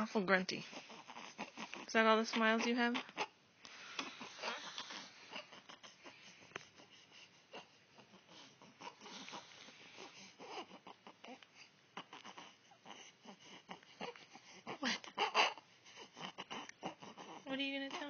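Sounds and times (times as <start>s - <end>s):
baby breathing: 3.6s - 17.5s
baby grunting: 4.0s - 6.1s, 12.0s - 18.0s.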